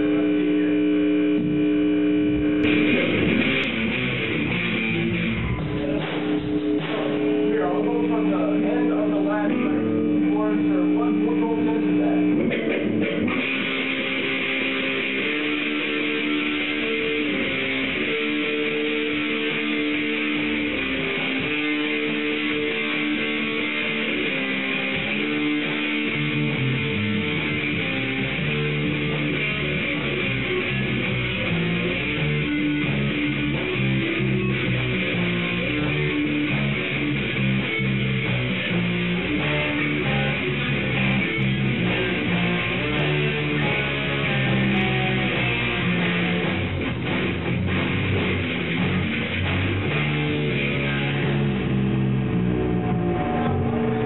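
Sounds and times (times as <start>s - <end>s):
electric guitar riff: 0.0s - 54.0s
lower instrument line: 13.3s - 54.0s.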